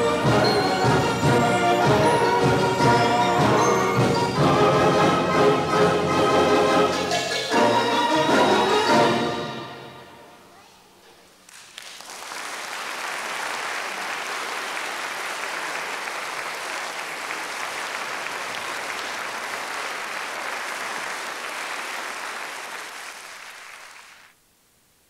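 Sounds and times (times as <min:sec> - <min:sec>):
audience applauding: 0:11.4 - 0:24.4.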